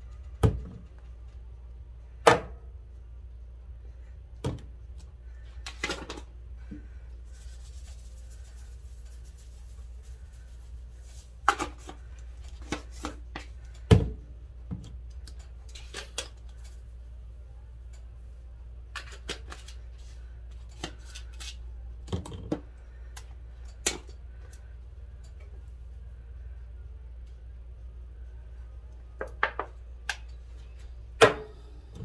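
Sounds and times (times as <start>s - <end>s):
steady low hum: 0.0s - 19.0s, 19.7s - 32.0s.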